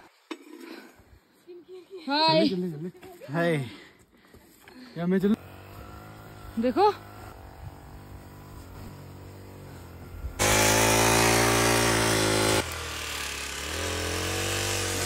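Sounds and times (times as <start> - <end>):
brush cutter engine running: 5.4 - 15.0.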